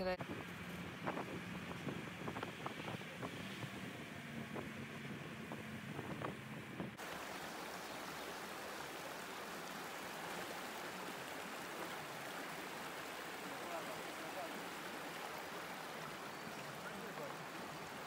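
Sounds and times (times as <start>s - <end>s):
vehicle interior road hum: 0.0s - 7.0s
stream running over rocks: 7.0s - 18.0s.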